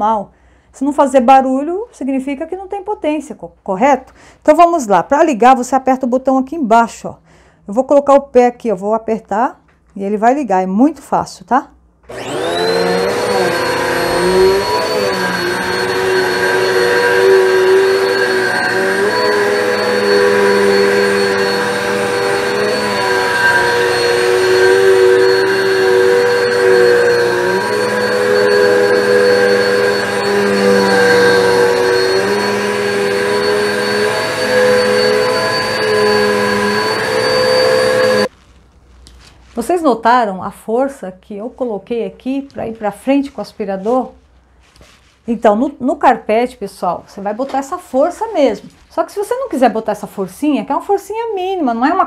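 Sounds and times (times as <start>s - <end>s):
vacuum cleaner whine: 12.1s - 38.3s.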